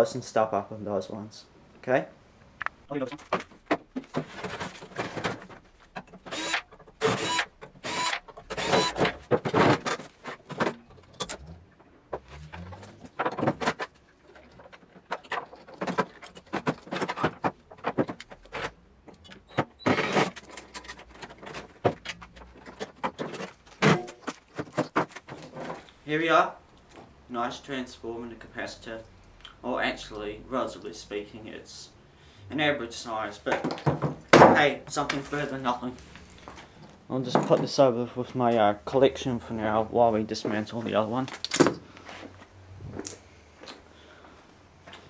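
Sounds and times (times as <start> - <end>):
cordless drill whirring: 6.3 - 9.1.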